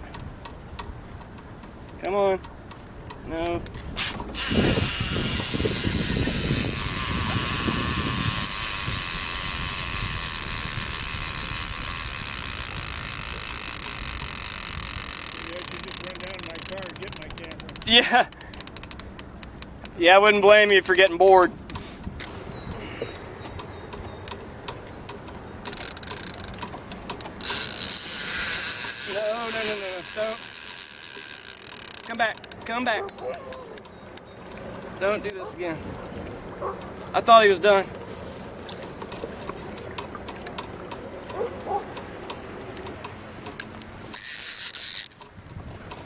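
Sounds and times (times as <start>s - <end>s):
water and air noise: 0.0s - 46.0s
fishing reel clicking: 3.4s - 20.0s, 25.6s - 34.2s, 43.5s - 45.4s.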